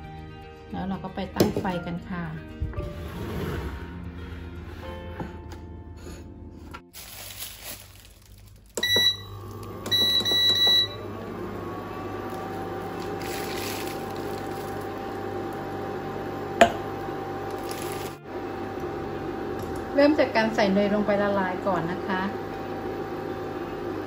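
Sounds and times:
fan hum and whine: 5.3 - 24.0
cooktop beeps: 8.8 - 11.2.

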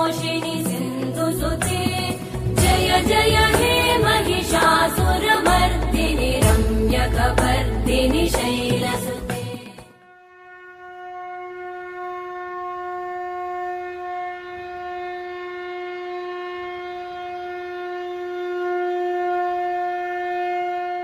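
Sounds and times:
horn-like wind instrument note: 9.8 - 21.0.

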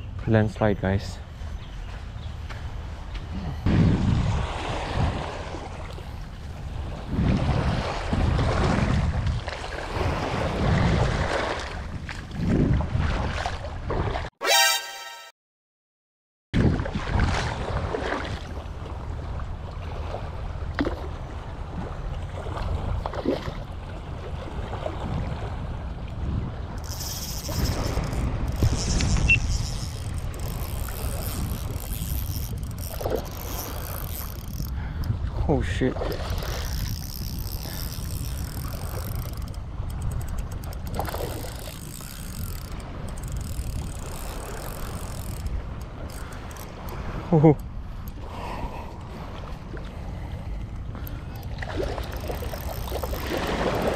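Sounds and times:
wind buffeting microphone: 1.3 - 14.2, 16.6 - 20.2, 21.6 - 53.9
fishing reel clicking: 26.8 - 35.2, 36.1 - 47.0, 51.0 - 53.9
water lapping on rocky shore: 49.0 - 53.9.

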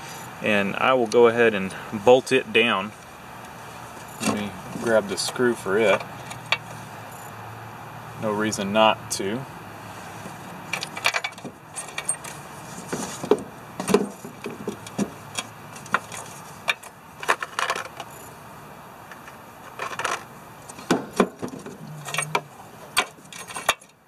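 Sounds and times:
small metal screws clinking: 10.7 - 12.4, 13.9 - 18.3, 19.7 - 24.0.

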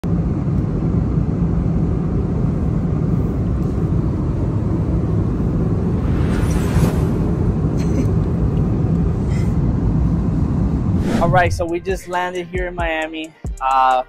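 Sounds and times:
jet engine rumble in cabin: 0.0 - 12.0
rising hiss: 5.7 - 7.8.

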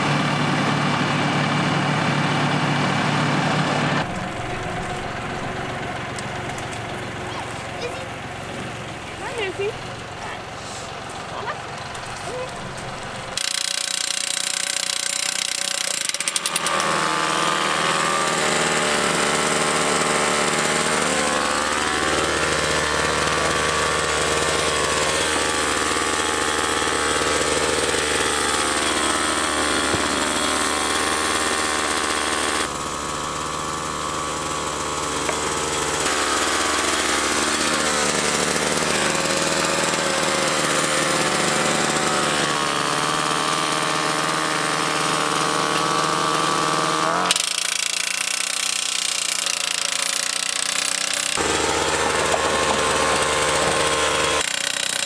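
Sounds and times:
post driver hammering: 47.3 - 55.0.

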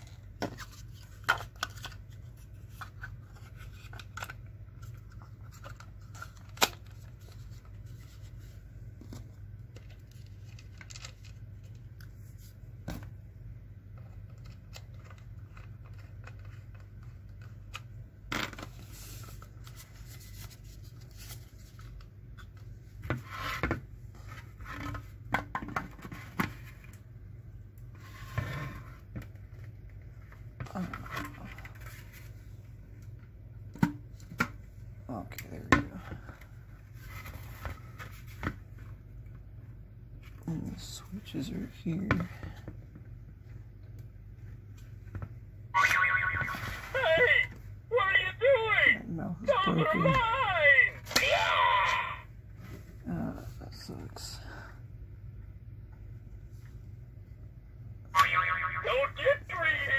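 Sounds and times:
rustling and scraping: 18.4 - 27.0, 27.9 - 32.7, 36.2 - 38.9.

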